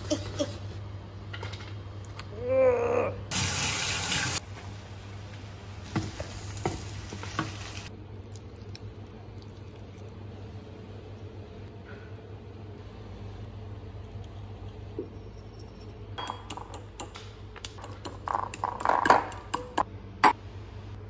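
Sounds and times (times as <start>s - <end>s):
low steady hum: 7.8s - 21.0s.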